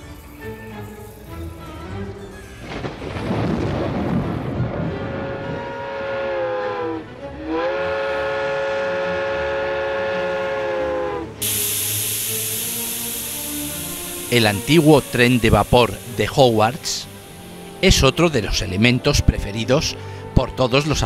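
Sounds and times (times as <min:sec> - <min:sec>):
steam locomotive whistle: 0:04.9 - 0:20.2
hiss of released steam: 0:11.4 - 0:19.2.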